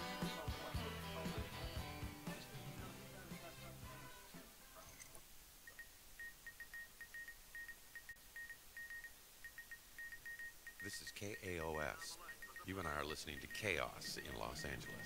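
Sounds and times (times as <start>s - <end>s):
radio-themed music: 0.0s - 5.2s, 10.8s - 15.0s
electronic beeps like morse code: 5.7s - 15.0s.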